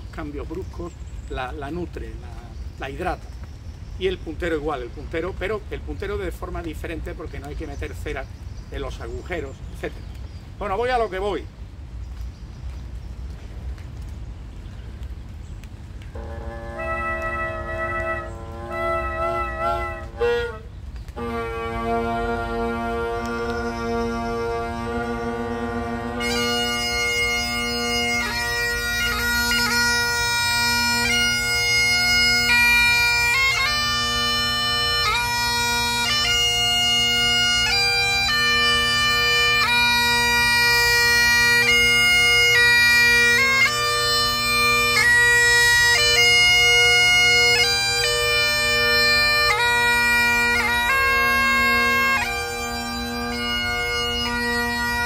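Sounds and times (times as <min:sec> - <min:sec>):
bagpipe drones: 0:16.1 - 0:55.0
bagpipe chanter melody: 0:16.2 - 0:55.0.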